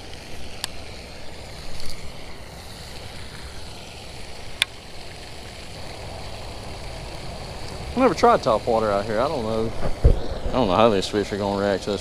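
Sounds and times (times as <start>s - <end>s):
pond fountain splashing: 0.0s - 12.0s
wind on microphone: 5.9s - 11.2s.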